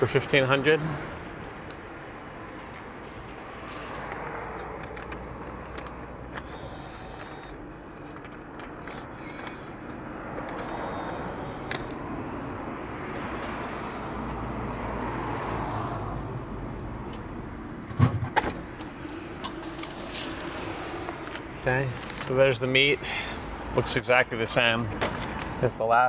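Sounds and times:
car passing by: 0:10.3 - 0:18.1.

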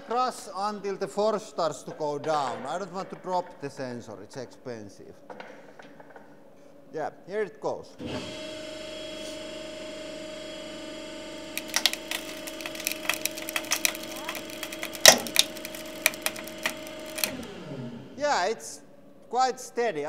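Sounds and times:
wood creaking and cracking: 0:11.6 - 0:17.5.

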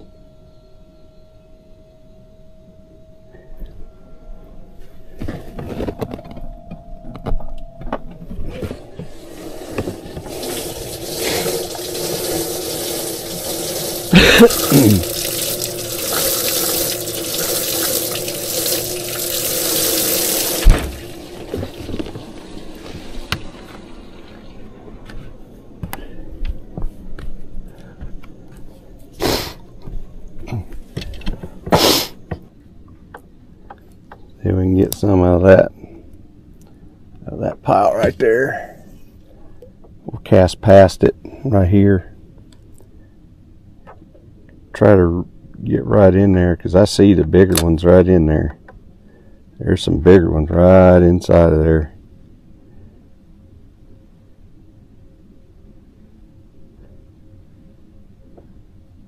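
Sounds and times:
water splashing into tank: 0:10.2 - 0:24.6
thump: 0:20.6 - 0:21.0.

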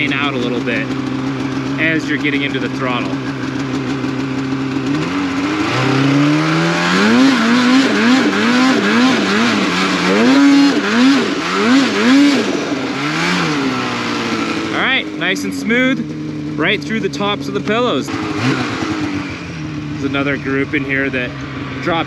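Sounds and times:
snowmobile engine revving: 0:00.0 - 0:22.0.

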